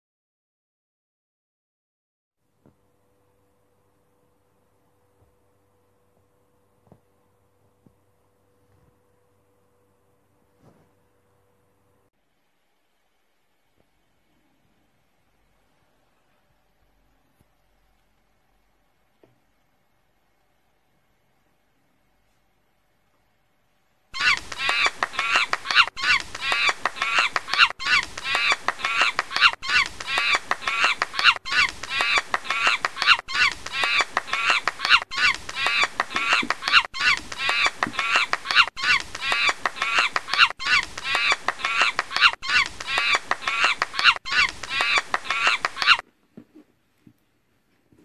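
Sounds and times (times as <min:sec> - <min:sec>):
rapid animal calls: 0:24.2 - 0:46.0.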